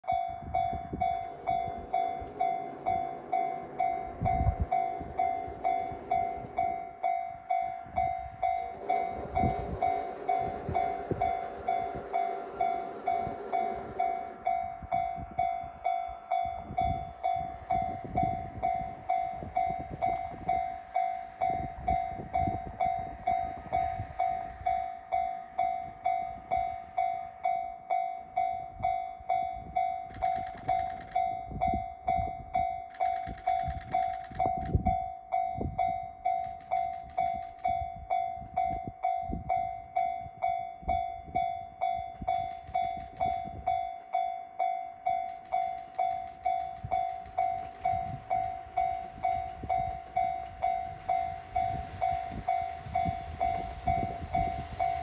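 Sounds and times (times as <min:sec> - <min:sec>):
diesel railcar engines running: 0:00.0 - 0:55.0
level crossing warning bell: 0:00.0 - 0:55.0.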